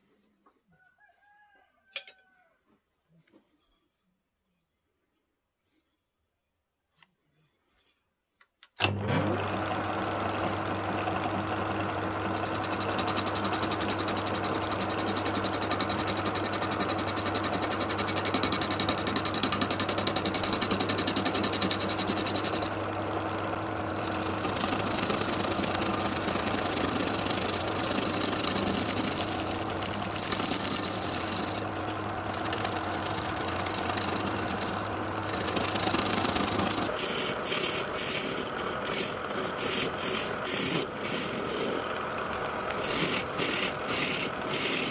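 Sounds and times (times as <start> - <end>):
lathe motor humming: 8.8 - 44.9
tool cutting spinning log: 8.8 - 44.9.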